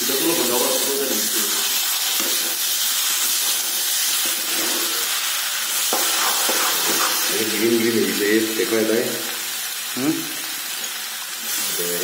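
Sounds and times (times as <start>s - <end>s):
food sizzling in a wok: 0.0s - 12.0s
metal spatula stirring: 1.8s - 7.3s.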